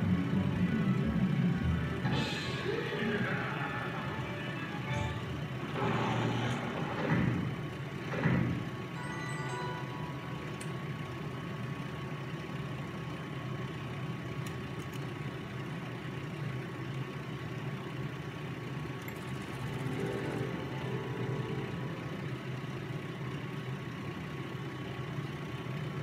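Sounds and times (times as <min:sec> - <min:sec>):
slot machine hum: 0:00.0 - 0:12.2, 0:19.1 - 0:24.2
electronic chime: 0:08.9 - 0:10.6, 0:19.4 - 0:22.7.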